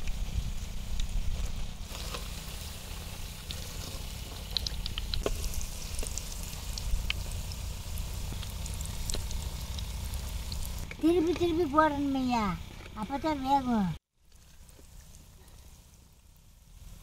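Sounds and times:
low rumble: 0.0s - 11.2s
oil sizzling with crackles: 0.0s - 17.0s.

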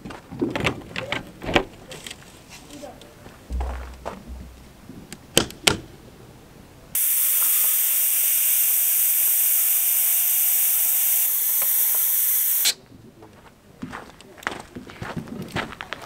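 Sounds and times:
compressed air hissing out: 7.0s - 12.8s.

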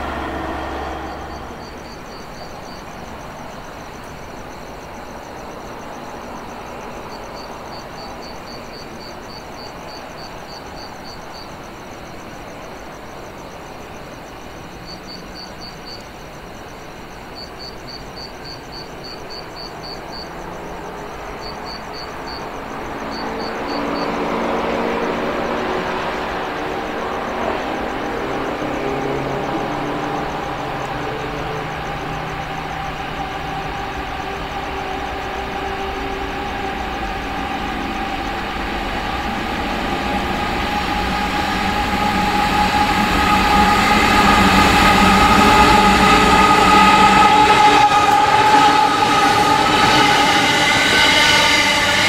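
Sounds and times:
outdoor rumble: 0.0s - 8.4s, 24.9s - 52.0s
approaching vehicle engine hum: 0.0s - 14.9s, 19.6s - 52.0s
passing train: 0.0s - 52.0s
rapid high insect chirps: 0.0s - 52.0s.

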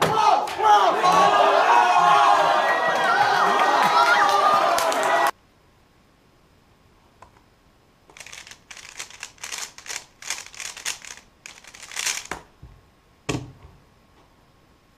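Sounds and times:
puzzle cube clicking turns: 8.1s - 12.4s.

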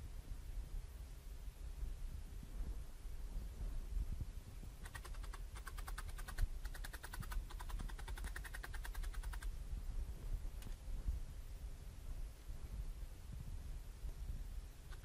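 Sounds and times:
felting needle ticking into foam: 4.8s - 9.5s.

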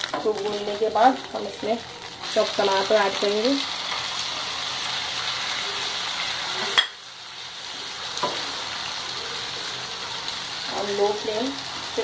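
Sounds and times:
tomatoes sizzling in hot oil: 0.0s - 12.0s.

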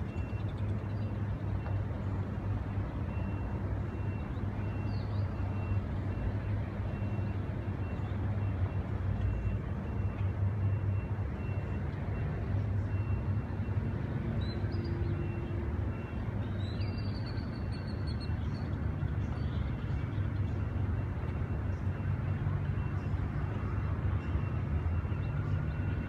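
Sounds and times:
bird chirps: 16.4s - 20.7s.

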